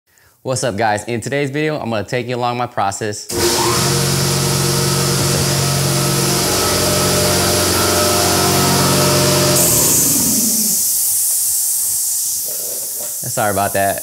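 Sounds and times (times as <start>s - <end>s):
motor winding down: 3.3s - 12.2s
air compressor running: 3.3s - 13.2s
hiss of released air: 3.3s - 14.0s.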